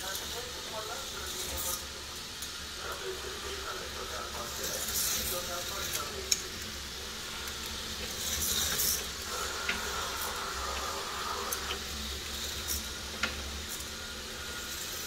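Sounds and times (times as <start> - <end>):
coaster car rattling on plastic track: 4.5 - 6.4, 7.6 - 9.9.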